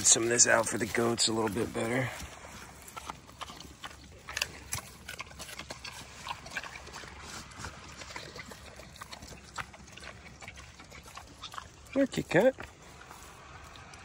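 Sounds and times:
pig chomping lettuce: 0.0 - 14.0
snout rustling dry leaves: 10.3 - 14.0.

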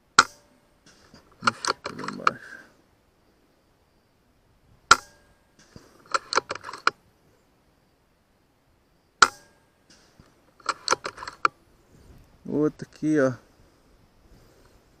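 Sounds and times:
metallic clicks of rifle action: 0.2 - 2.5, 4.9 - 7.0, 9.2 - 11.6.

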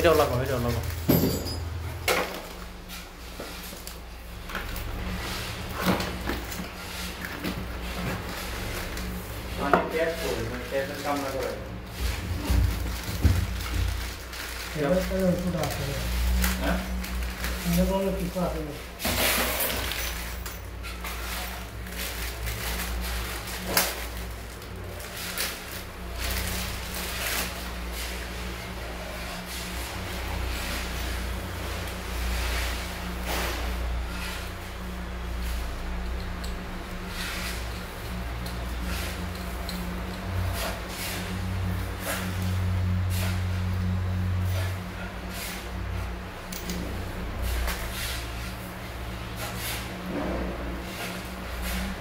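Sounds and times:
steady low hum: 20.2 - 52.0.

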